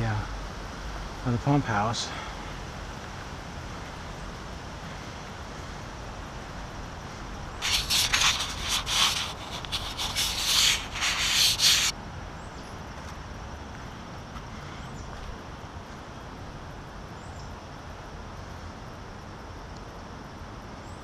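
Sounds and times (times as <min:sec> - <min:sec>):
fingers rubbing on microphone: 0:07.6 - 0:11.9.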